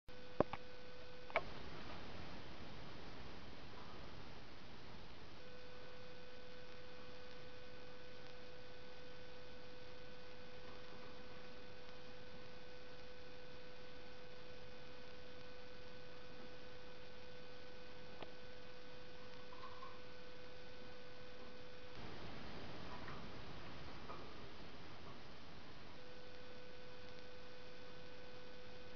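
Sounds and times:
steady whine: 0.1s - 28.9s
faint hiss: 14.9s - 28.9s.

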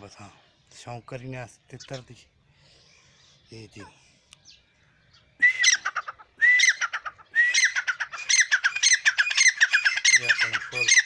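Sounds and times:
partridge calling shrilly: 4.4s - 11.0s.

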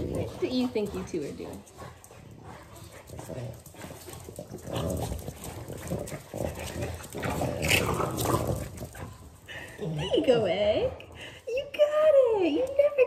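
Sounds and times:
dogs scuffling: 0.0s - 9.9s
dogs growling while playing: 0.0s - 11.4s.

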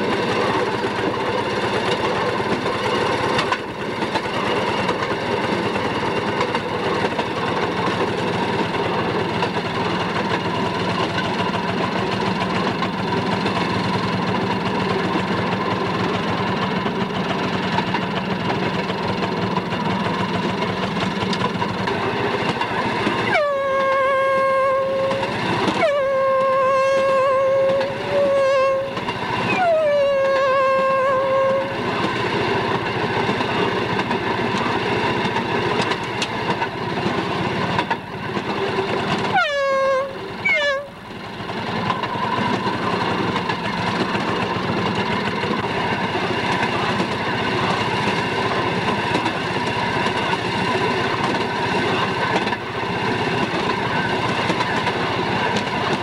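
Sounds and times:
horn blasts: 23.3s - 31.8s, 39.3s - 41.0s.

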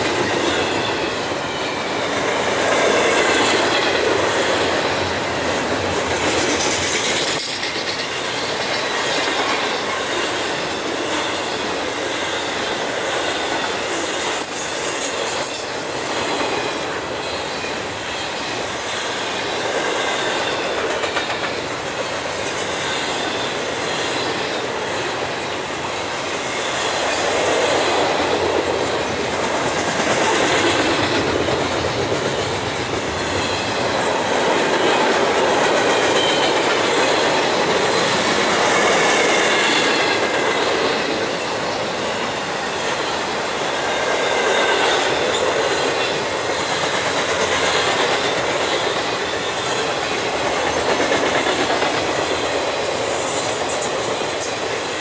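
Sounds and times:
train wheels clattering on rails: 0.0s - 55.0s
high wheel squeals: 10.8s - 19.6s.

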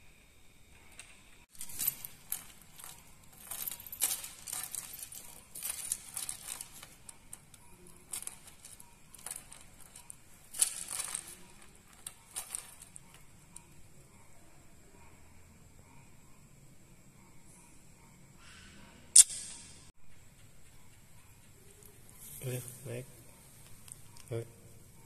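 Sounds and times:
metal chain clinking: 0.9s - 14.4s, 21.5s - 25.0s.

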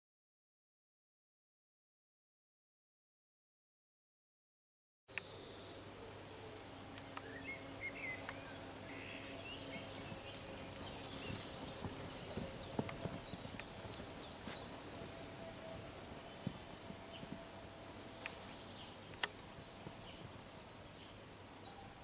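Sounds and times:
birds chirping: 5.1s - 22.0s
hoofbeats on sand: 8.9s - 18.9s.

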